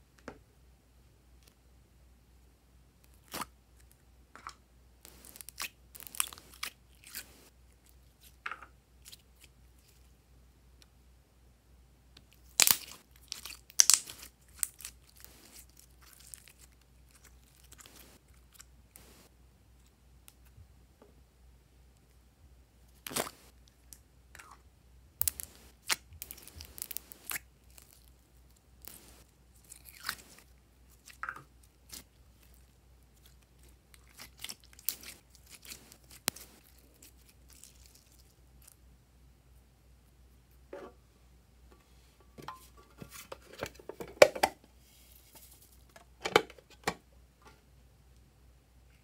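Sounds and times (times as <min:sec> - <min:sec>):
slime sticky clicks and crackles: 0:25.2 - 0:28.1, 0:34.0 - 0:37.6.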